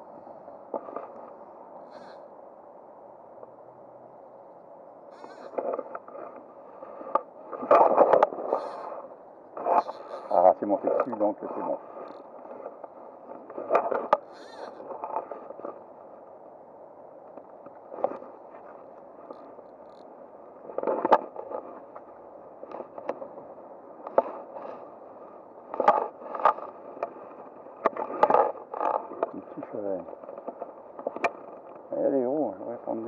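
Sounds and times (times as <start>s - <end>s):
clicking and scraping: 0.7s - 1.4s, 5.2s - 9.0s, 9.6s - 15.8s, 17.3s - 23.4s, 24.0s - 31.9s.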